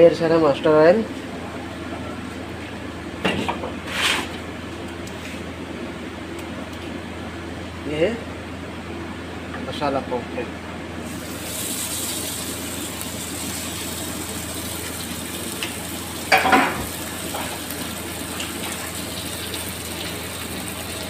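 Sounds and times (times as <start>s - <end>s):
fish sizzling in oil: 11.1s - 21.0s.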